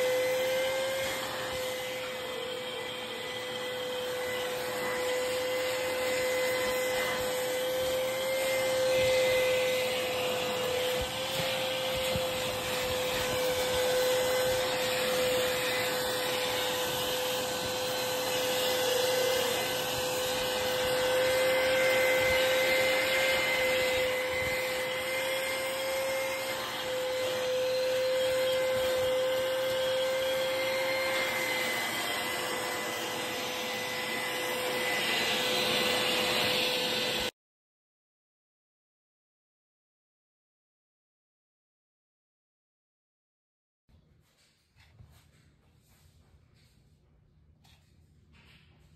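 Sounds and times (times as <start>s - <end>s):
vacuum cleaner running: 0.0s - 37.4s.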